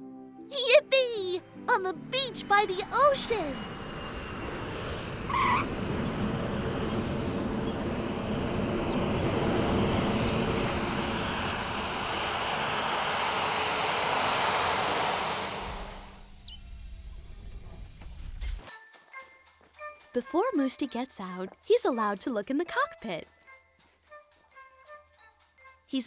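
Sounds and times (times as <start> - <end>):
jet engines roaring: 2.8 - 18.6.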